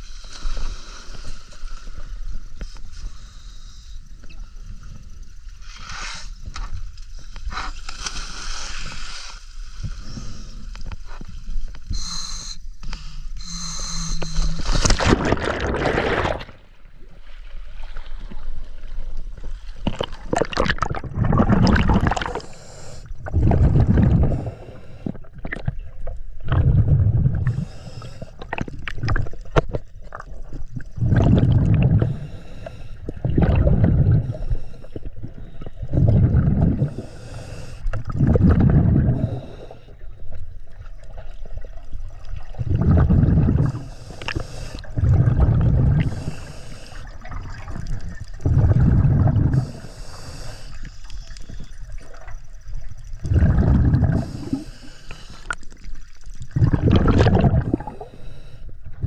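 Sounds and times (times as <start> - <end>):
water sloshing and gurgling: 12.8 - 59.0.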